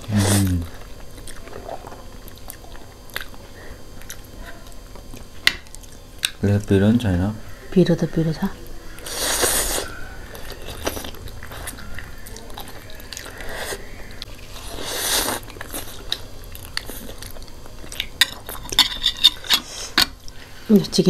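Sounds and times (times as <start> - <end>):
people slurping noodles: 0.0 - 0.8, 9.0 - 16.2
quiet chewing: 0.6 - 6.4, 8.5 - 20.6.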